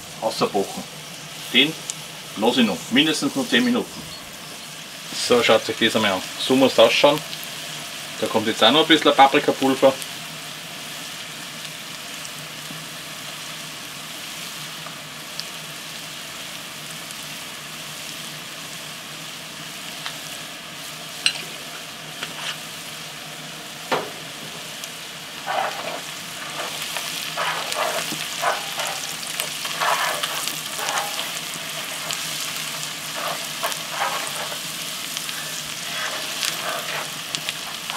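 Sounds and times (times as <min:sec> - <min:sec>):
onions sizzling in a pot: 0:00.0 - 0:37.9
wooden spoon scraping a pot: 0:25.4 - 0:37.9.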